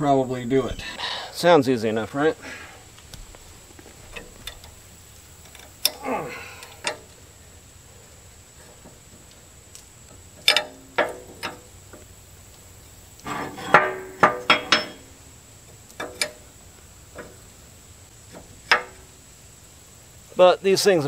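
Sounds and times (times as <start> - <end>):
wrenches clanking on metal fittings: 10.4 - 11.7, 13.2 - 15.1.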